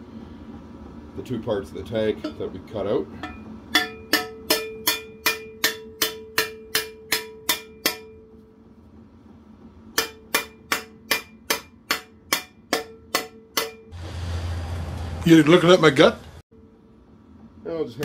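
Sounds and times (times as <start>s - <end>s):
hammer striking steel: 3.2s - 8.4s, 9.9s - 14.0s.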